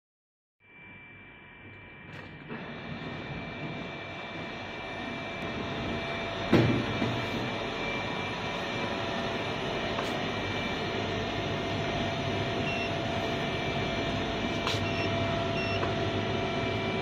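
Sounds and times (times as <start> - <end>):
packaging machinery humming: 1.6 - 17.0.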